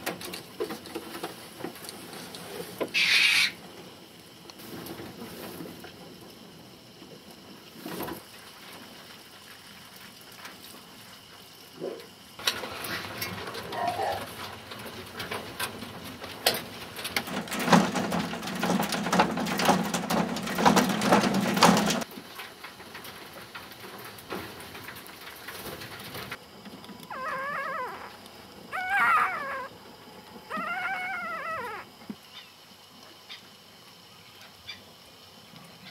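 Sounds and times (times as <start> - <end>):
animals scrabbling in wire cages: 0.0 - 3.9, 11.8 - 32.5
animal whining calls: 3.0 - 3.6, 27.1 - 29.8, 30.4 - 32.5.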